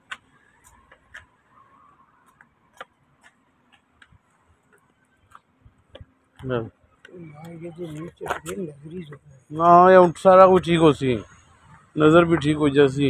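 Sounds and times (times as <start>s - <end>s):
faint irregular clicks: 0.0s - 9.3s.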